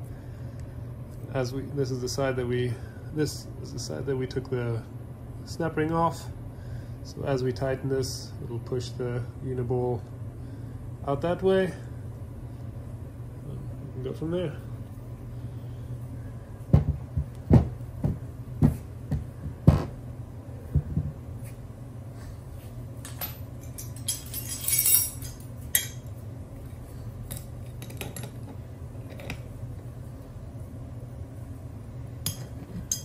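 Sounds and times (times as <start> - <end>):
metal knocks and clinks: 23.0 - 26.0.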